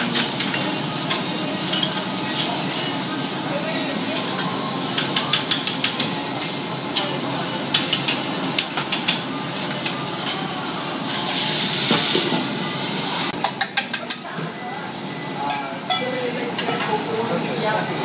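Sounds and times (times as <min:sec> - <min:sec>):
steady kitchen hiss: 0:00.0 - 0:18.0
metal spatulas clinking on griddle: 0:00.1 - 0:02.9, 0:04.2 - 0:07.1, 0:15.5 - 0:17.0.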